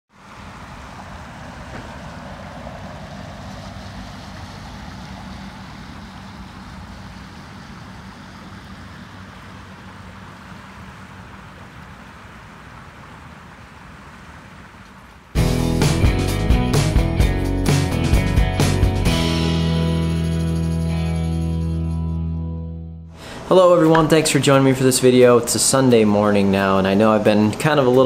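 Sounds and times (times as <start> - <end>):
floodwater rushing: 0.1 - 15.4.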